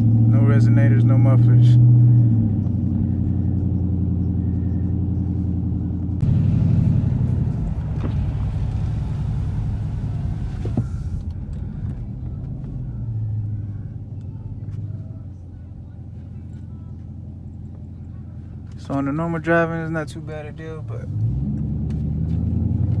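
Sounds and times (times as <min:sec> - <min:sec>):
car exhaust rumble: 0:00.0 - 0:23.0.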